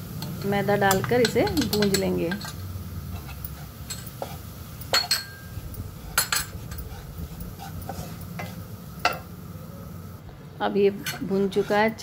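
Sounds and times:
spatula scraping frying pan: 0.8s - 9.4s, 11.0s - 12.0s.

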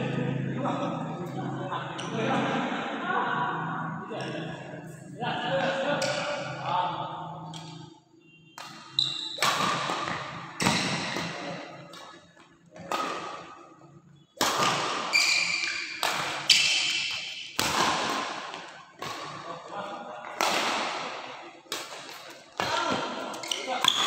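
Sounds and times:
racket hitting shuttlecock: 8.6s - 12.2s, 12.8s - 13.6s, 14.4s - 19.5s, 20.3s - 24.0s.

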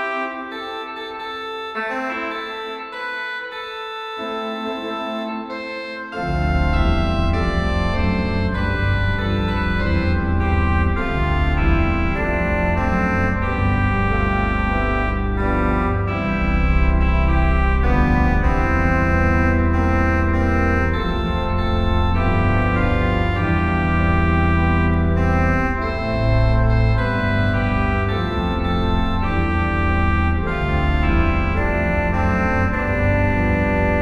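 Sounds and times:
pipe organ playing chords: 0.0s - 34.0s
deep organ bass notes: 4.6s - 34.0s.

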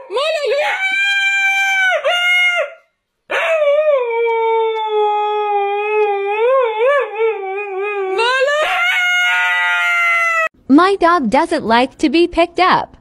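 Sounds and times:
husky howling: 0.4s - 10.5s.

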